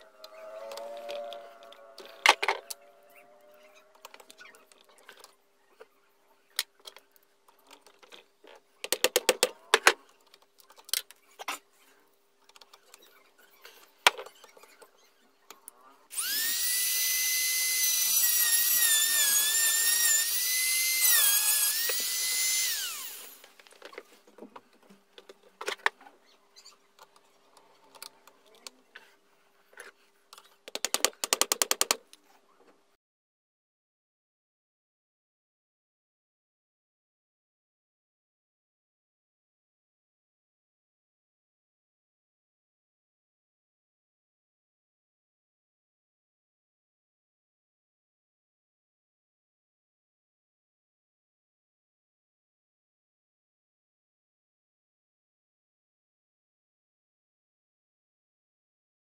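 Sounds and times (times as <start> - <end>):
rotary tool whining: 0.0 - 6.0, 12.5 - 24.2.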